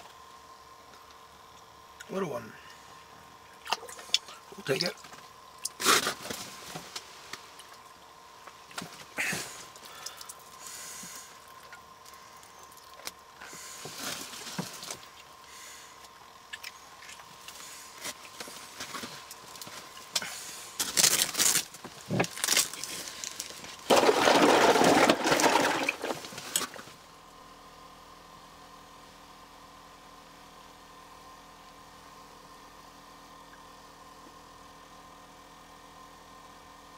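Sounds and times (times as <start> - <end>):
faint steady hum: 0.0 - 36.9
loud noisy rustle: 5.8 - 7.5, 17.6 - 27.0.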